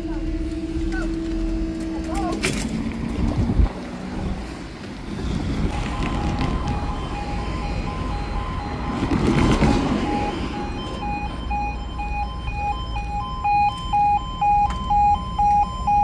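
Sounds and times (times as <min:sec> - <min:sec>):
road traffic passing: 0:00.0 - 0:16.0
level crossing alarm two-tone: 0:05.7 - 0:16.0.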